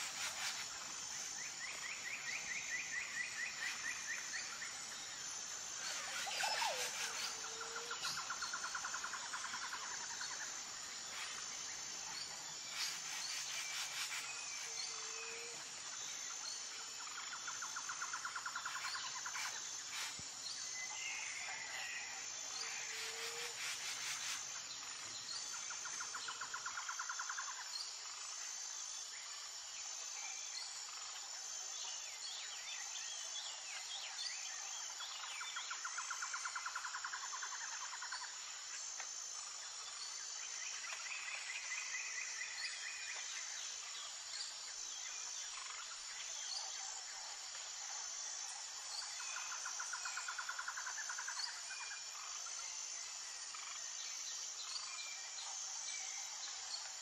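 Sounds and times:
high insect buzz: 0:00.0 - 0:21.0, 0:22.3 - 0:28.6.

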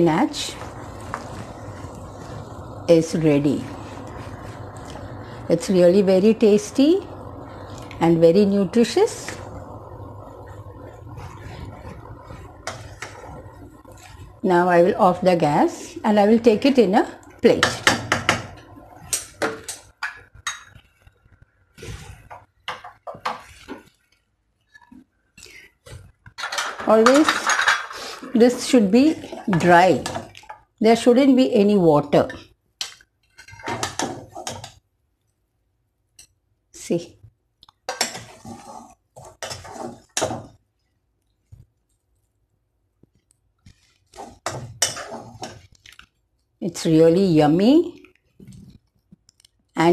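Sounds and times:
metal spoon scraping a pan: 0:17.6 - 0:21.1, 0:26.4 - 0:30.6, 0:32.1 - 0:34.8, 0:37.9 - 0:40.6, 0:44.0 - 0:45.8
utensils and dishes clinking: 0:26.4 - 0:28.2.

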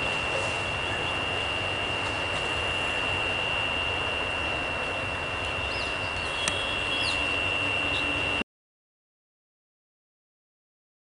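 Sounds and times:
train coaches rushing past: 0:00.0 - 0:08.4
constant high-pitched tone: 0:00.0 - 0:08.5.

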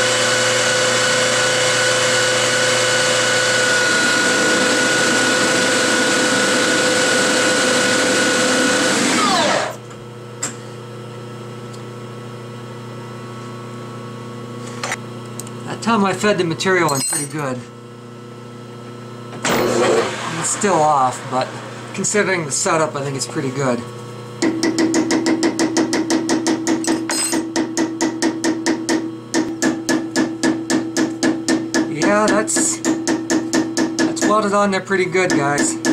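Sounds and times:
lathe spindle whining: 0:00.0 - 0:09.8, 0:19.4 - 0:23.8.

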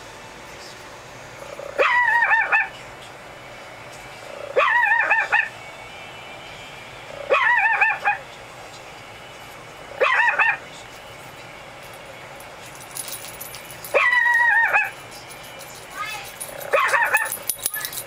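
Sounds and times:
puppy howling through speakers: 0:01.6 - 0:02.8, 0:04.5 - 0:05.6, 0:07.2 - 0:08.2, 0:10.0 - 0:10.7, 0:13.9 - 0:15.0, 0:16.0 - 0:18.0.

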